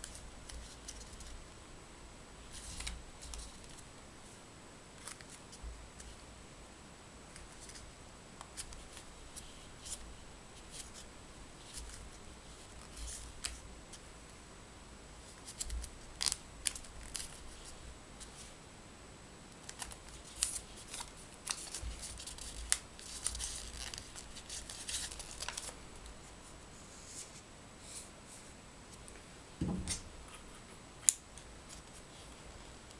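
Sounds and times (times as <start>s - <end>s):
paper crinkling and creasing: 2.5s - 3.8s, 5.0s - 6.2s, 10.6s - 14.0s, 15.2s - 18.5s, 19.6s - 26.3s.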